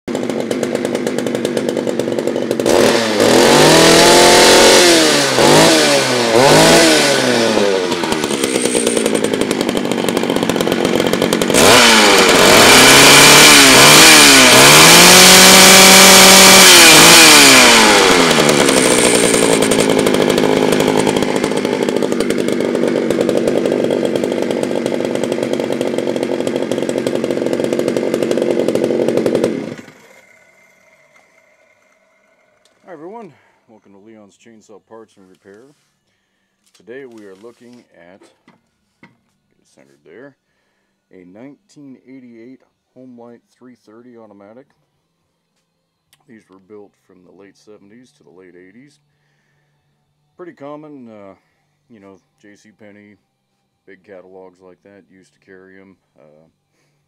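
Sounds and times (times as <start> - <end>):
chainsaw engine idling and revving: 0.1 - 33.8.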